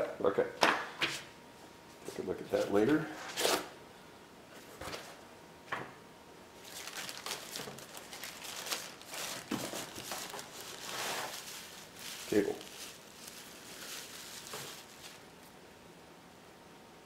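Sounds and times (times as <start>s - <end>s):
packing wrap rustling and crinkling: 6.6s - 15.5s.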